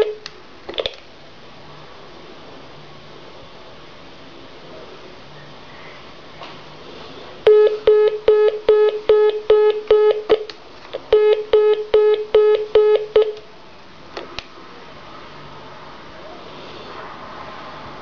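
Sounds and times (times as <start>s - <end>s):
telephone line tone beeping: 7.5s - 10.4s, 11.1s - 13.4s.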